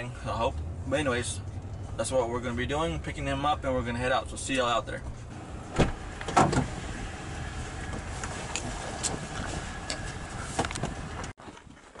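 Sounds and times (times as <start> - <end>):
pickup truck idling: 5.2 - 11.3.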